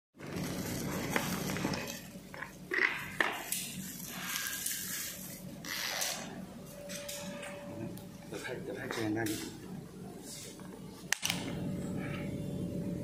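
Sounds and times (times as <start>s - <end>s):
bubble wrap and cardboard rustling: 0.2s - 2.2s, 3.7s - 5.5s.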